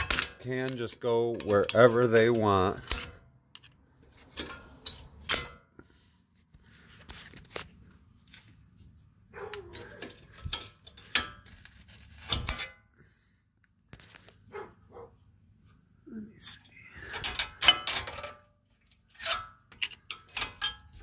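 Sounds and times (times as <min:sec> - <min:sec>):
screwdriver scraping metal clip: 0:00.0 - 0:05.5, 0:18.9 - 0:21.0
metal clicks and clanks: 0:00.0 - 0:05.6, 0:09.5 - 0:12.8, 0:17.0 - 0:21.0.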